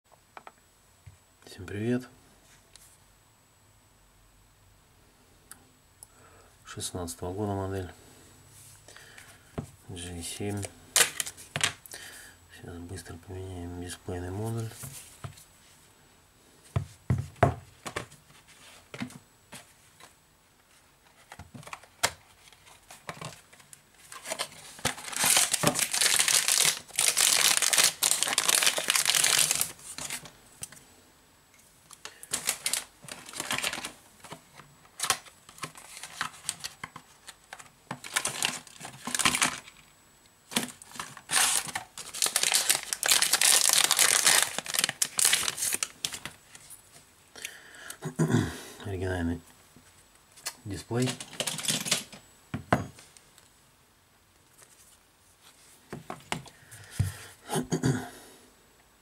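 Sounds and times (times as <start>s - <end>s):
crinkling rustling: 17.7s - 30.8s, 31.8s - 39.9s, 40.5s - 47.1s, 49.8s - 52.3s.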